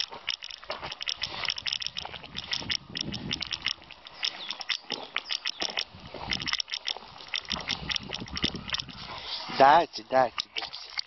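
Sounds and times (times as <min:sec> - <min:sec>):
footsteps crunching on gritty road: 0:00.0 - 0:10.9.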